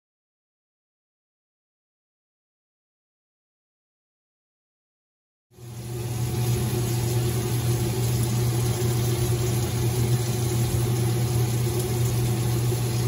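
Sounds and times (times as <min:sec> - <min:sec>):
steady low hum: 0:05.6 - 0:13.0
vegetables sizzling in a pot: 0:05.6 - 0:13.0.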